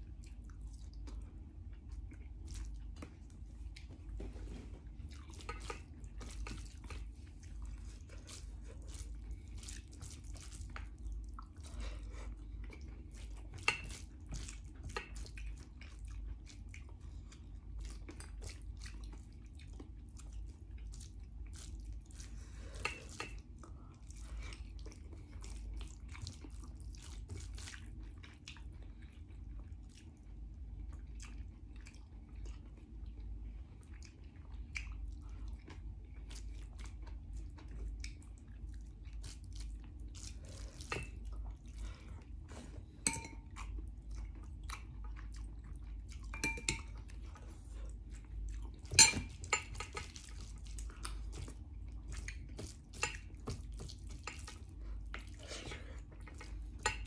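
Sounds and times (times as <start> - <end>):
steady low hum: 0.0 - 57.0
utensils clinking against dishes: 48.9 - 50.1.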